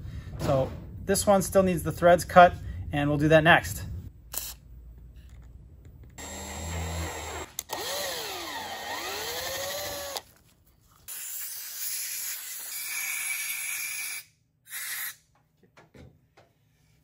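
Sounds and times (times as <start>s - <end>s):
cordless drill motor whine: 6.2s - 10.2s.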